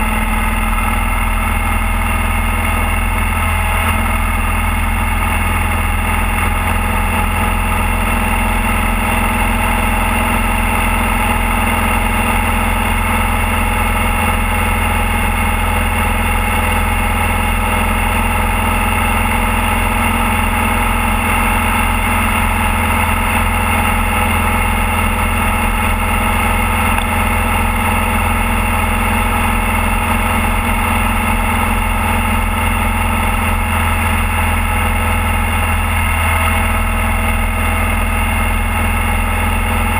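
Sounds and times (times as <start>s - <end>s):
motorcycle engine cruising: 0.0s - 39.9s.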